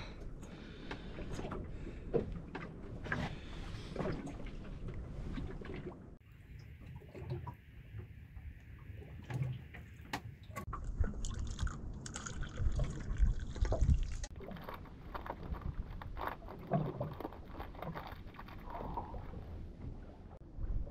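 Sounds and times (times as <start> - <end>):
liquid pouring into a cup: 11.2 - 14.2.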